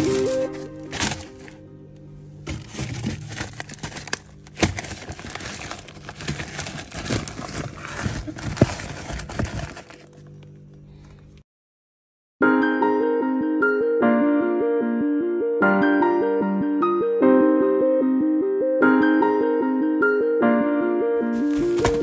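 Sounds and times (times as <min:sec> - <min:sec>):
plastic-wrapped packs crinkling: 0:00.0 - 0:01.6, 0:02.4 - 0:10.4, 0:21.4 - 0:22.0.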